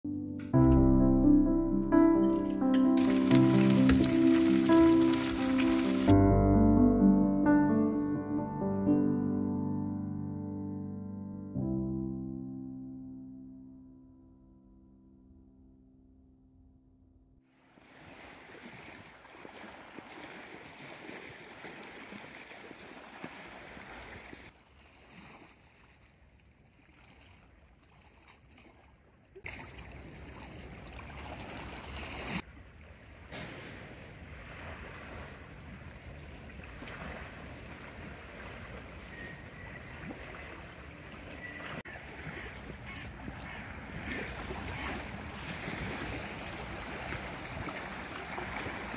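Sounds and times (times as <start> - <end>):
small waves lapping on shore: 2.9 - 6.1, 17.5 - 48.9.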